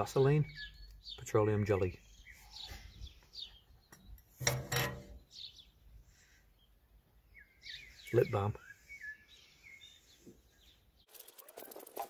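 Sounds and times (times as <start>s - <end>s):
birds chirping faintly: 0.0s - 12.0s
metal tin lid scraping: 4.4s - 5.2s.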